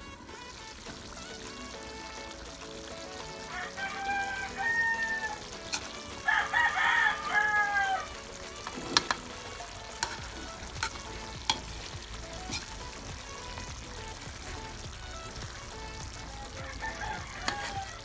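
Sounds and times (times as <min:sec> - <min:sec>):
rooster crowing: 0:03.3 - 0:08.1, 0:16.6 - 0:18.0.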